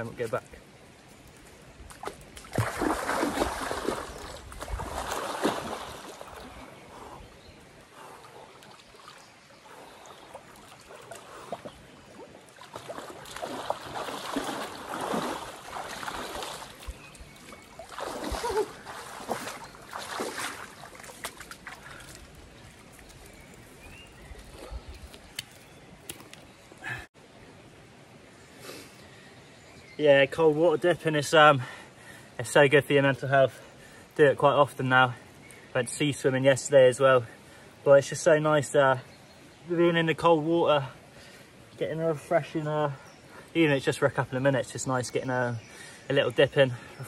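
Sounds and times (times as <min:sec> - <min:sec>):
river flowing: 0:00.6 - 0:24.6
water splashing: 0:01.8 - 0:27.0.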